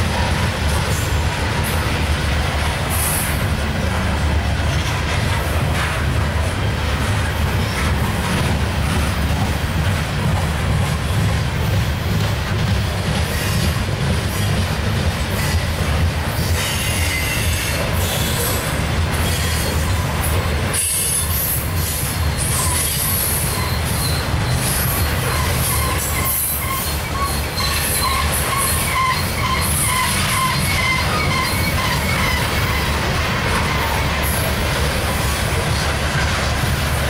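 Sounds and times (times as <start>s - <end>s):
train wheels rumbling on rail: 0.0s - 37.0s
wavering wheel squeal: 22.3s - 34.3s.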